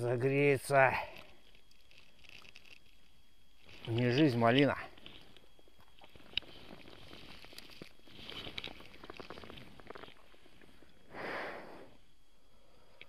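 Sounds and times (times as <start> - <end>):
rustling dry leaves: 1.0 - 5.4, 6.1 - 10.3.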